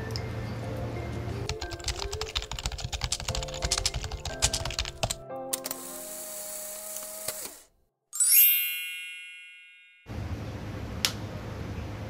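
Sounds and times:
background music: 0.0 - 7.2
shimmering chime ding: 8.2 - 10.1.

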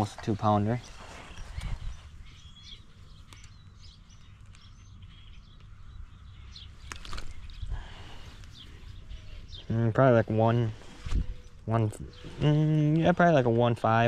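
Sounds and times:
small birds chirping: 0.0 - 14.0
sharp clicks: 3.2 - 3.6.

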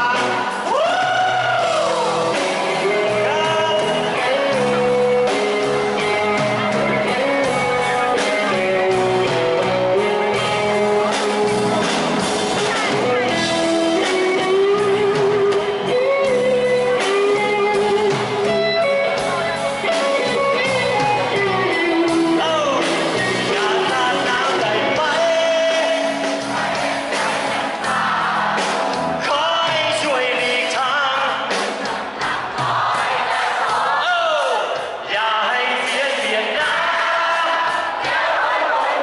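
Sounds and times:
man singing lead vocals: 0.0 - 11.9, 12.6 - 31.8, 34.0 - 39.0
electric bass and guitar: 0.0 - 30.0.

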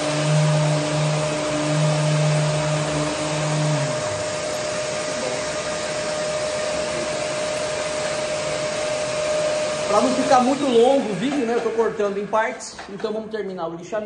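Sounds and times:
electric sander whining: 0.0 - 12.6.

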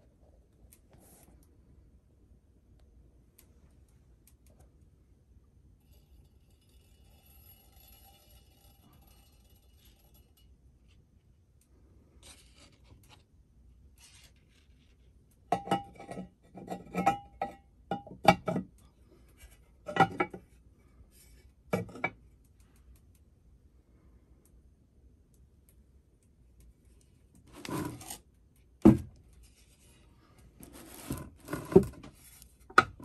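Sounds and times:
metal lid clanking on metal: 15.6 - 18.6, 19.9 - 20.4.

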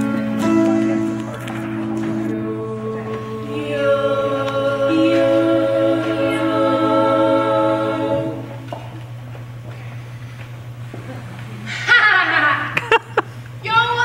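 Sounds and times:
steady low hum: 0.0 - 14.0
women singing in harmony: 2.2 - 8.7.

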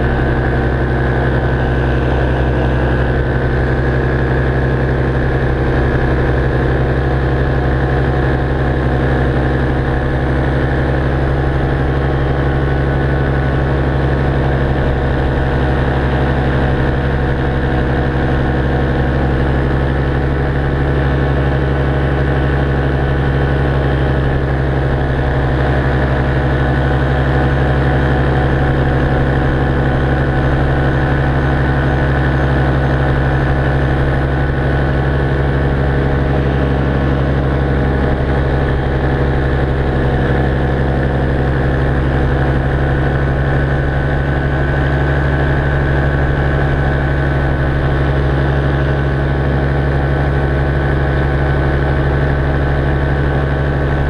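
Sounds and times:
paramotor engine and propeller drone: 0.0 - 54.0.

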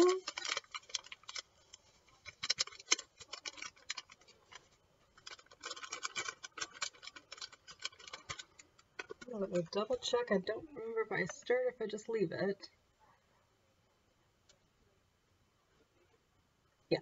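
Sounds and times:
paper packet crinkling: 0.0 - 10.0.

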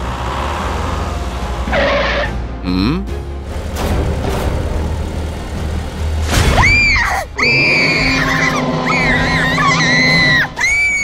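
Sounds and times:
background music: 0.0 - 11.0
high-pitched voice screaming: 6.6 - 11.0.

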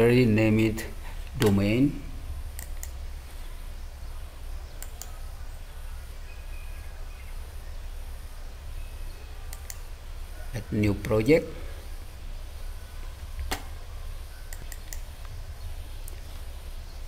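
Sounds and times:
faint microphone hiss: 0.0 - 17.0
low electrical hum: 0.0 - 17.0
short faint clicks: 2.5 - 3.0, 4.8 - 5.1, 9.5 - 9.9, 14.5 - 15.4.

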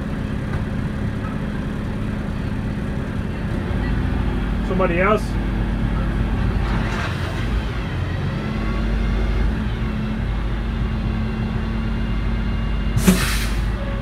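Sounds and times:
diesel lorry engine running: 0.0 - 14.0
hiss with a thump: 13.0 - 13.7.

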